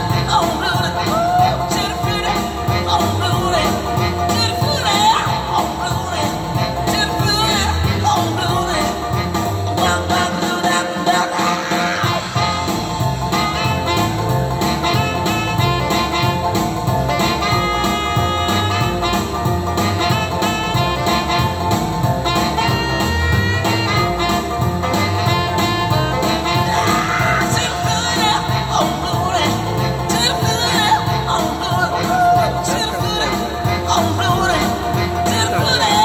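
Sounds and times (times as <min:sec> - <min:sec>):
person singing: 0:00.0 - 0:12.8, 0:25.2 - 0:36.0
live keyboard music with beat: 0:00.0 - 0:36.0.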